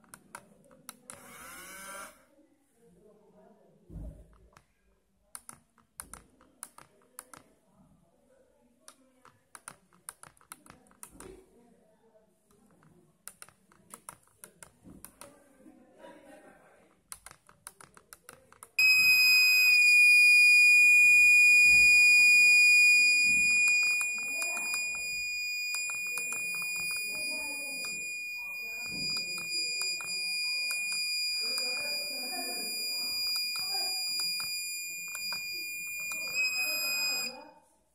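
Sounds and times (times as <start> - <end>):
high-pitched buzzer alarm tone: 18.8 - 37.3
keypad buttons clicking: 23.2 - 28.0.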